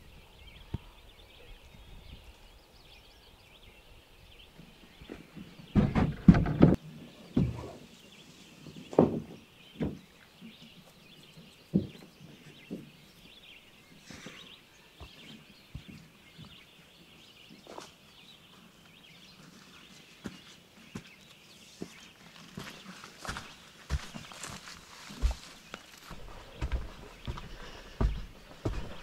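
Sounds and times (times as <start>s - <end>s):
footsteps: 17.6s - 29.0s.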